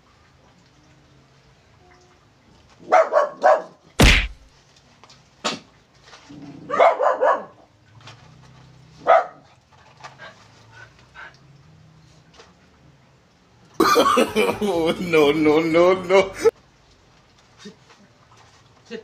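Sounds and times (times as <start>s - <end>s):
dog barking: 2.8s - 3.8s, 6.6s - 7.7s, 9.0s - 9.5s
loud thump: 4.0s - 4.4s.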